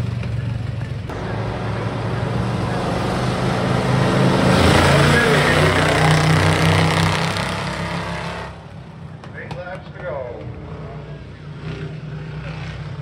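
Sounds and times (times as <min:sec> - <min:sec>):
racing truck engines passing: 0:00.0 - 0:09.3.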